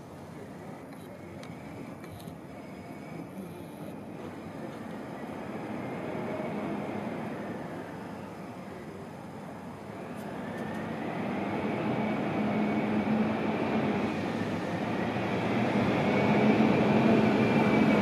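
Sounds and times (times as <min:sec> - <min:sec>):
faint high whine: 0:00.0 - 0:18.0.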